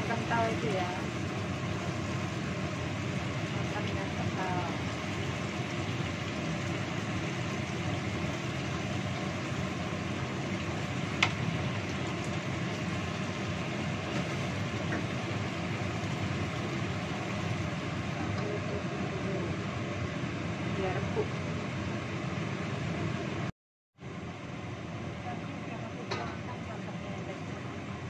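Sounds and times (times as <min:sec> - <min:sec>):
food simmering with steady hiss: 0:00.0 - 0:28.0.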